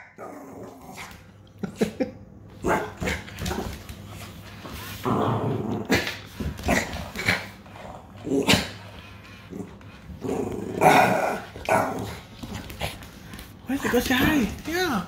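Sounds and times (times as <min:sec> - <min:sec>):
dog growling: 0:05.0 - 0:12.3.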